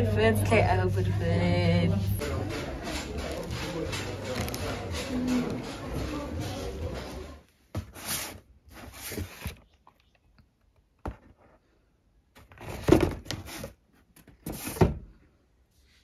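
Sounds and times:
cardboard scraping and rustling: 0:02.9 - 0:09.7, 0:12.4 - 0:15.0.

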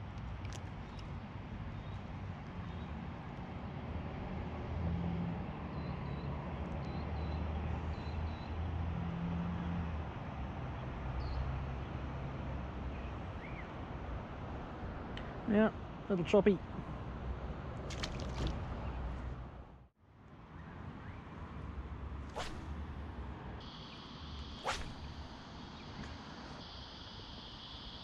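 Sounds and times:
distant traffic rumble: 0:00.0 - 0:28.0
high bird chirps: 0:23.6 - 0:28.0.

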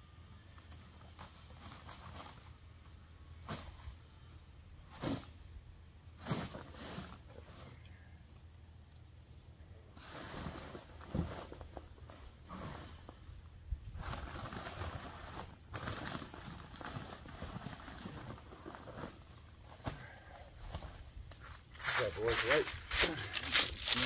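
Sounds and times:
dry leaves rustling into paper bag: 0:13.9 - 0:19.3, 0:21.7 - 0:24.0.

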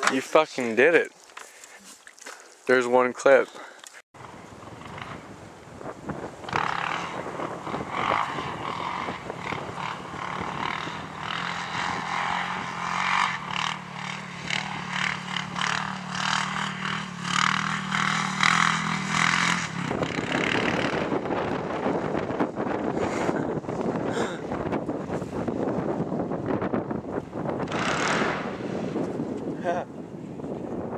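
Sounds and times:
quad engine running: 0:04.2 - 0:05.4, 0:06.1 - 0:26.8, 0:27.6 - 0:29.1
wind on microphone: 0:04.2 - 0:30.9.

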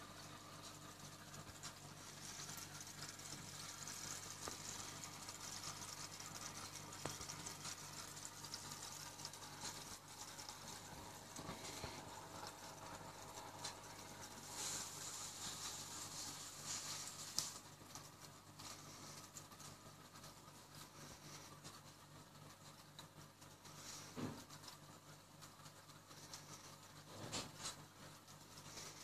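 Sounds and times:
aquarium pump hum: 0:00.0 - 0:29.0.

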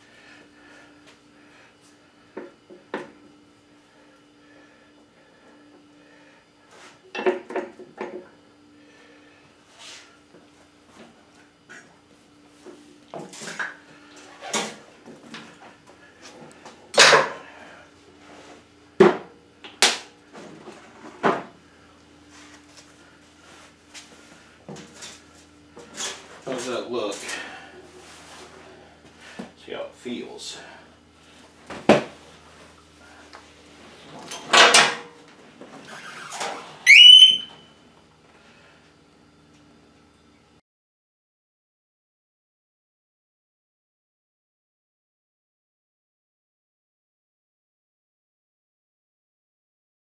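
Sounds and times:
faint steady hum: 0:00.0 - 0:40.6
short rising squeal: 0:35.9 - 0:37.6.

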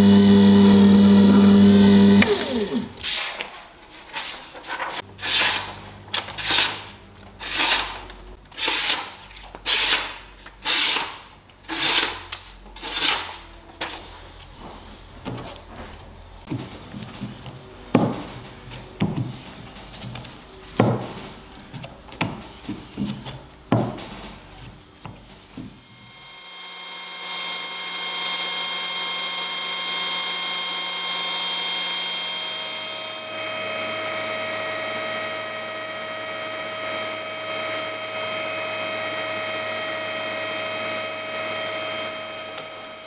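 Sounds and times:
sharpener motor humming: 0:00.0 - 0:02.9, 0:25.9 - 0:43.0.

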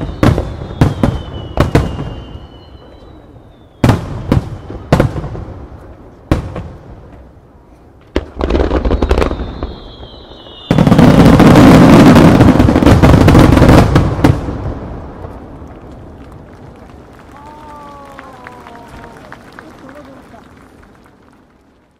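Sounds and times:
falling firework whistle: 0:00.0 - 0:05.1, 0:08.4 - 0:13.6
firework booms and bursts: 0:00.0 - 0:07.4, 0:08.0 - 0:16.0.

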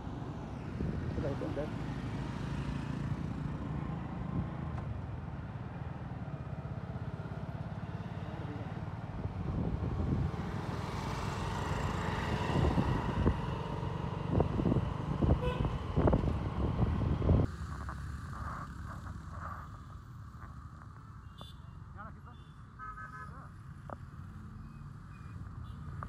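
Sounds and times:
vehicle engines running: 0:01.1 - 0:21.2.

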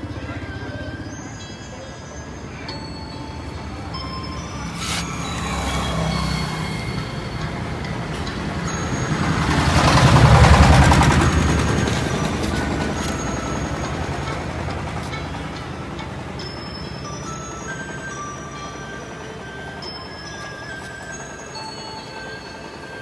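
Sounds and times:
vehicle engine passing by: 0:04.1 - 0:15.0.

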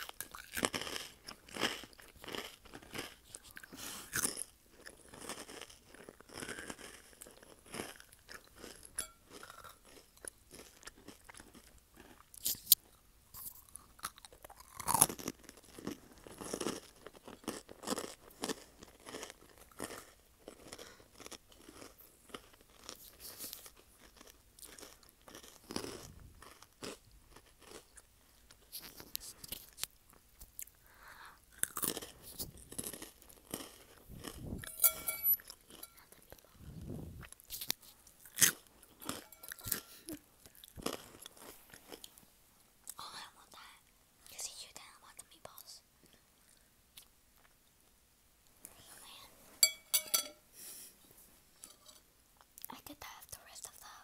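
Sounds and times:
chewing candy: 0:00.0 - 0:42.2.

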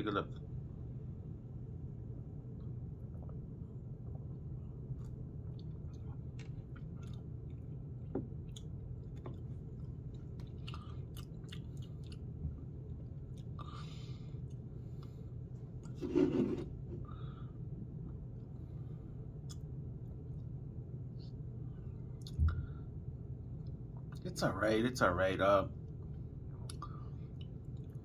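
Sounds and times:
low room hum: 0:00.0 - 0:28.0
lip smacks and mouth clicks: 0:19.4 - 0:19.7, 0:22.2 - 0:22.6.

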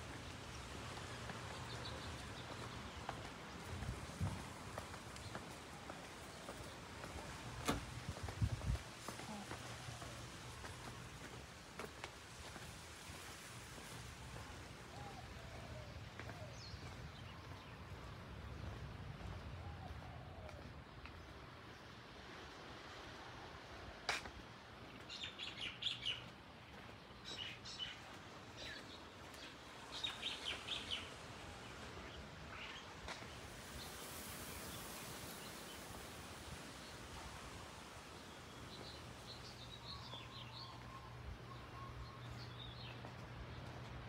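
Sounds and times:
faint outdoor background noise: 0:00.0 - 0:44.0
small birds chirping: 0:25.0 - 0:36.1, 0:38.2 - 0:43.9.

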